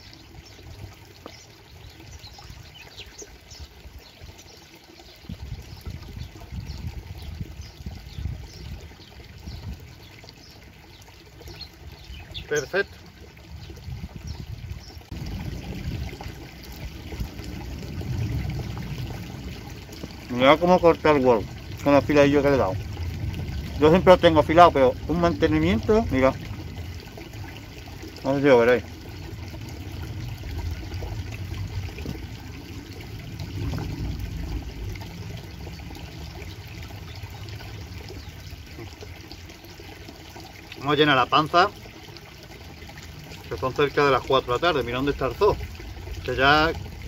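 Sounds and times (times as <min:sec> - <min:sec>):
stream trickling: 0:00.0 - 0:47.0
wind rumbling on microphone: 0:05.1 - 0:10.6, 0:11.5 - 0:39.1, 0:44.6 - 0:47.0.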